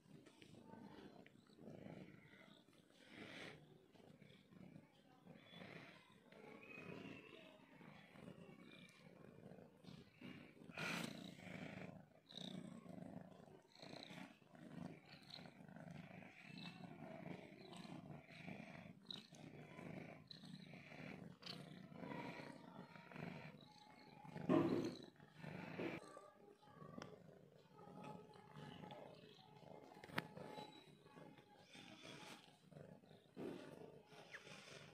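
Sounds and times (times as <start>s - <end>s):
cat purring: 0.0s - 34.9s.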